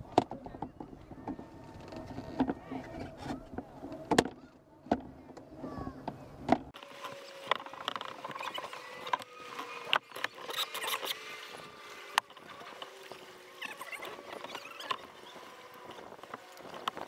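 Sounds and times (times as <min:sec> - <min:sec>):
paddle clicks and knocks: 0:00.0 - 0:11.3
water lapping against kayak hull: 0:00.0 - 0:17.0.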